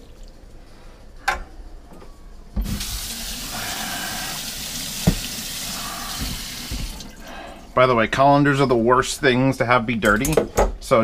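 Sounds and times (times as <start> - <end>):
tap water running into sink: 2.6 - 7.2.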